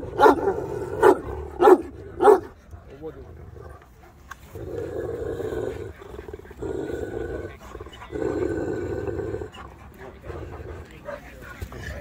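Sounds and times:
dog growling low: 3.1 - 12.0.

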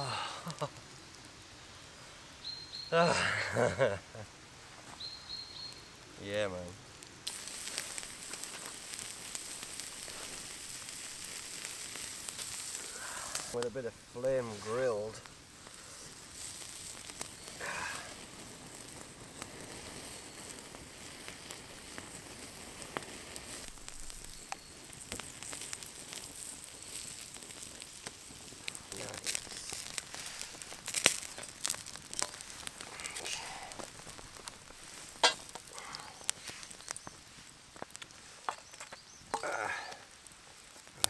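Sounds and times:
food sizzling: 0.0 - 1.4, 2.0 - 41.0
campfire crackling: 0.0 - 41.0
sharp pops: 7.1 - 13.7, 22.8 - 40.0.

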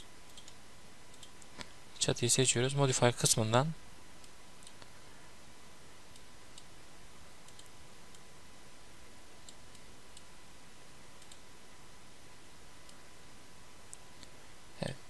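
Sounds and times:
computer mouse clicks: 0.0 - 1.7, 4.2 - 4.9, 7.4 - 8.3, 9.4 - 10.3, 11.2 - 11.4
low hiss: 0.0 - 15.0.

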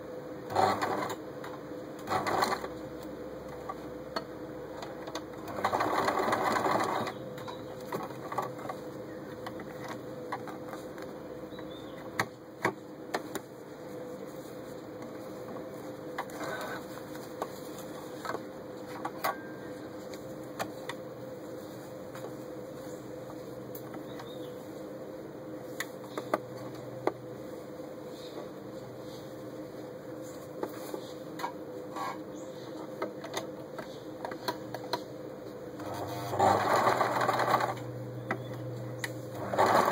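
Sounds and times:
faint steady hum: 0.0 - 39.9
sewing machine stitching: 0.5 - 1.2, 2.0 - 2.7, 5.4 - 7.2, 35.8 - 37.8, 39.3 - 39.9.

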